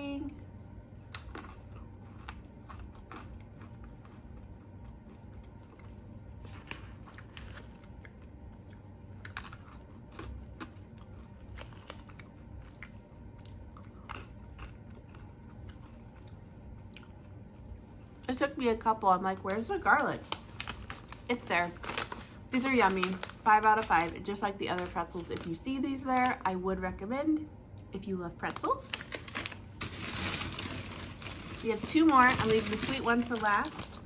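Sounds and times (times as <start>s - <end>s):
low steady hum: 0.0s - 34.0s
person crunching pretzels: 1.0s - 18.4s, 19.4s - 26.1s.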